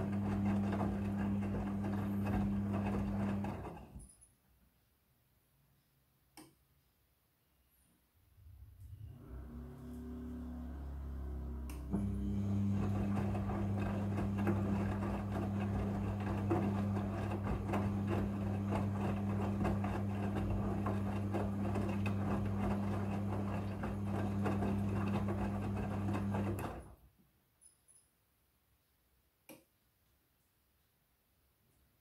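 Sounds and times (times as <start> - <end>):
washing machine motor humming: 0.0 - 4.0, 9.0 - 27.0.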